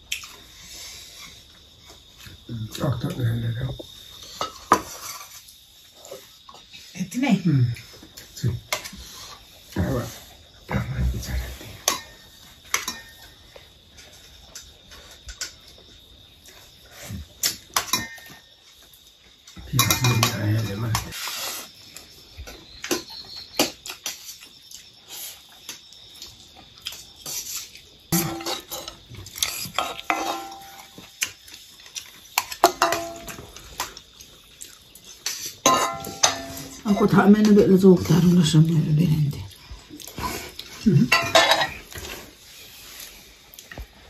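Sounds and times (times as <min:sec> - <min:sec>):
plates and bowls clinking: 0:04.3 - 0:05.4, 0:11.8 - 0:13.3, 0:17.5 - 0:18.5, 0:19.6 - 0:21.2, 0:28.1 - 0:31.1, 0:32.4 - 0:33.9, 0:35.2 - 0:38.3, 0:40.3 - 0:42.1
ladle scraping iron wok: 0:35.7 - 0:36.8.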